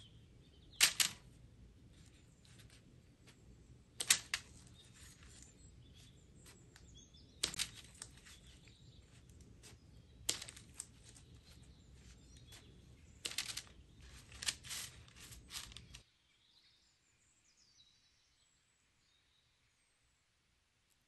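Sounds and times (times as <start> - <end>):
low background hum: 0.0 - 16.0.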